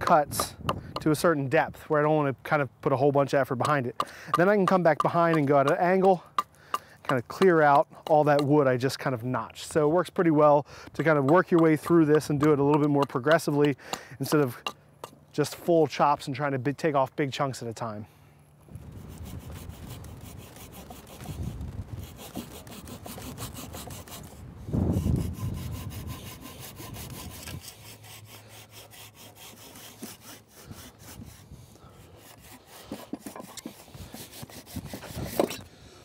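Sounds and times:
hand saw cutting wood: 3.6 - 8.5, 10.8 - 15.6, 19.0 - 35.7.

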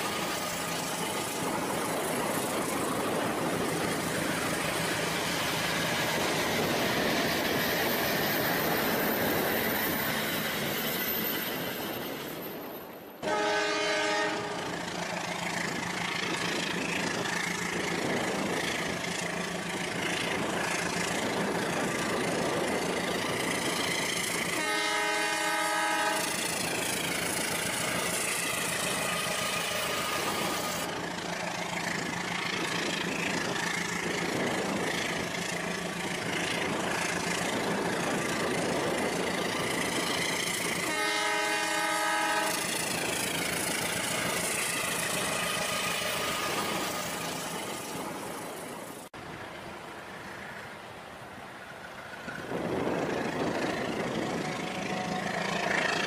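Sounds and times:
train running noise: 0.0 - 56.0
train horn chord: 13.2 - 14.7, 24.5 - 26.4, 40.8 - 42.8.

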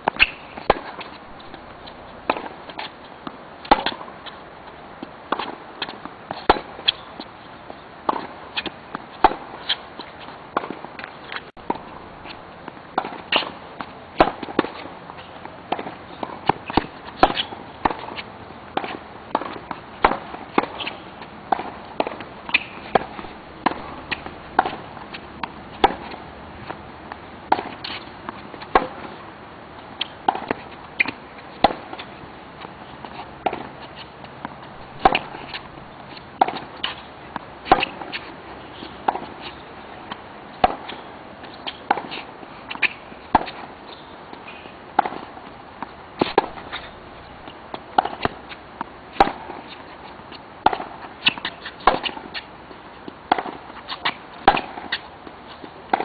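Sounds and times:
tennis balls struck and bouncing: 0.0 - 4.4, 5.0 - 56.0.

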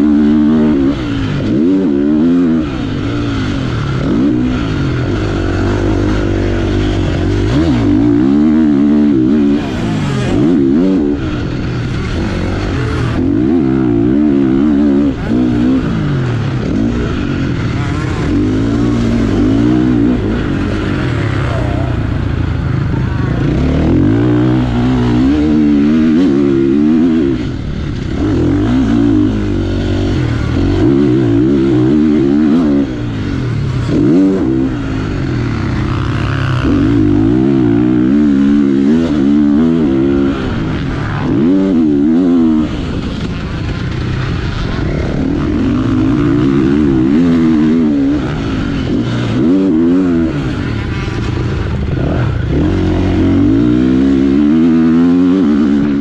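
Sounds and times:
motocross bike engine revving: 0.0 - 56.0.

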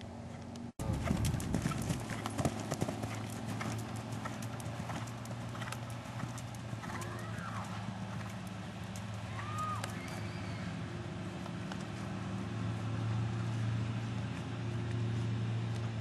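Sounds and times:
horse hoofbeats on dirt: 0.2 - 10.6.

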